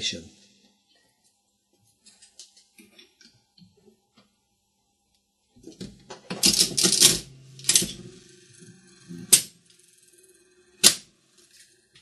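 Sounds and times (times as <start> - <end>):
metal clicks and rattles: 5.7 - 8.0.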